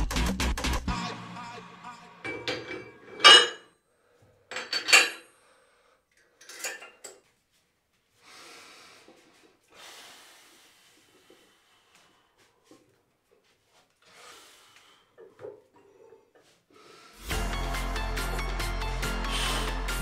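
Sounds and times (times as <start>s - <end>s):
weight plates clanking: 2.3s - 3.7s.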